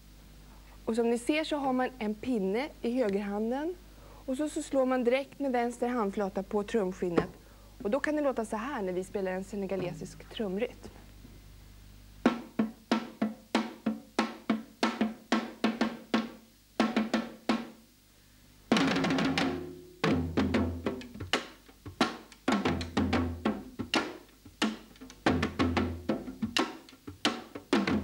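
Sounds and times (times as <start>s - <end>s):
hand and stick drums playing: 9.8s - 10.9s, 12.2s - 17.8s, 18.7s - 28.0s.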